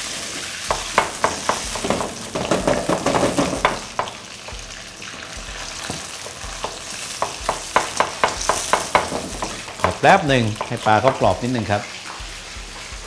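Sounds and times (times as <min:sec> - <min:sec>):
fish sizzling in deep oil: 0:00.0 - 0:13.0.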